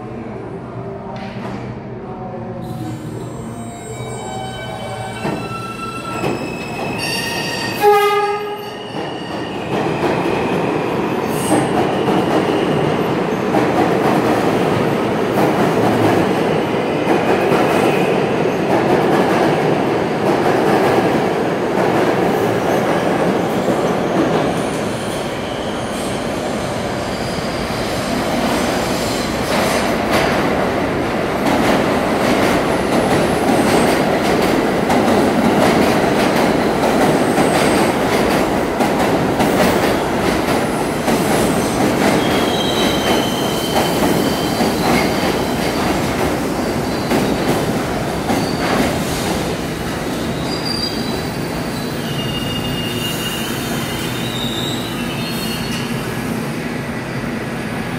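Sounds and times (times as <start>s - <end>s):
train rumbling on rails: 0.0s - 57.9s.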